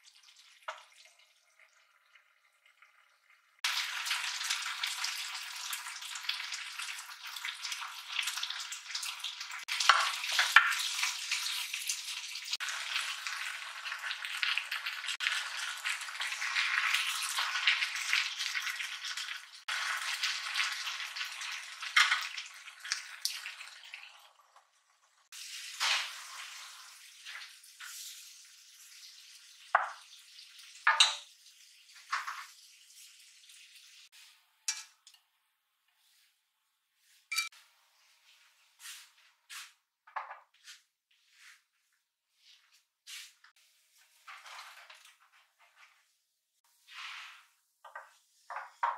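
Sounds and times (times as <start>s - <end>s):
vegetables sizzling in a wok: 3.6s - 35.2s, 46.7s - 48.9s
utensils clinking on cookware: 30.9s - 31.3s, 34.6s - 35.2s, 37.3s - 37.6s.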